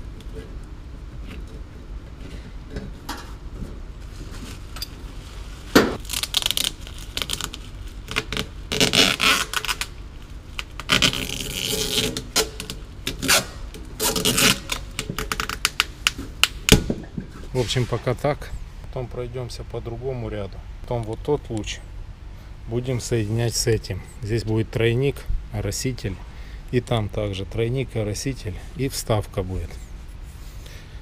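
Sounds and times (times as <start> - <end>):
plastic bag rustling: 3.8 - 12.1
tape pulled off roll: 5.7 - 9.9, 10.6 - 17.5.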